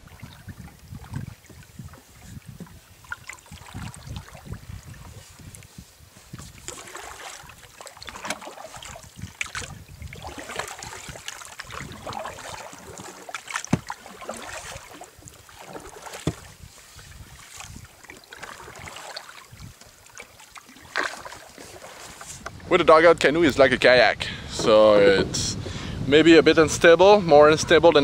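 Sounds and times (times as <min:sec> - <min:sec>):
water dripping from paddle: 0:00.0 - 0:05.7, 0:06.3 - 0:22.6
paddle splashing in water: 0:00.0 - 0:22.8.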